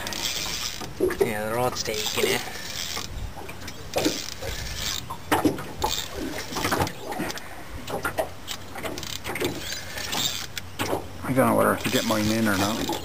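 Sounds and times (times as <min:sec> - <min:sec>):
fishing reel clicking: 0:00.0 - 0:00.9, 0:02.0 - 0:03.1, 0:09.0 - 0:10.6, 0:11.8 - 0:13.0
fishing rod creaking: 0:00.0 - 0:13.0.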